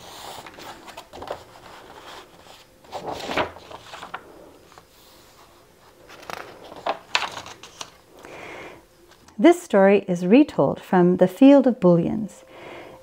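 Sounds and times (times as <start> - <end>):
book pages turning: 0.0 - 8.0.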